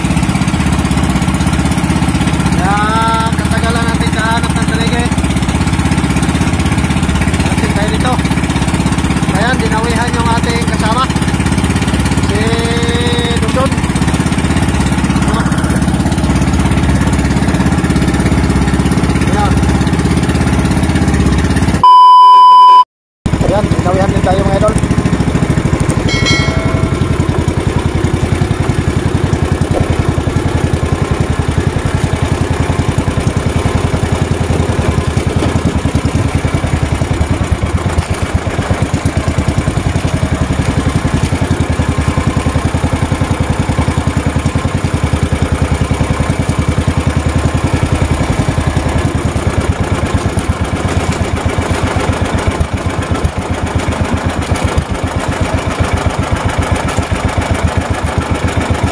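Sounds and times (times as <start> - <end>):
small boat engine running: 0.0 - 21.8, 23.3 - 58.9
short electronic chime: 26.1 - 27.4.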